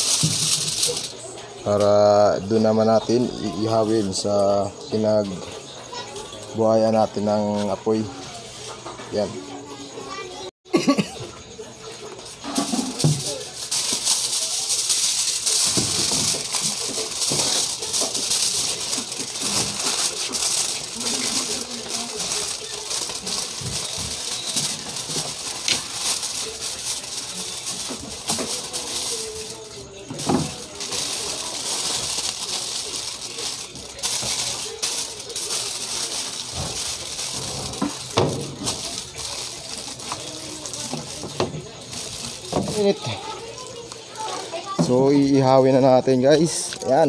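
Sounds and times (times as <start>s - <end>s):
aluminium foil crinkling: 0.0s - 1.9s, 12.0s - 44.8s.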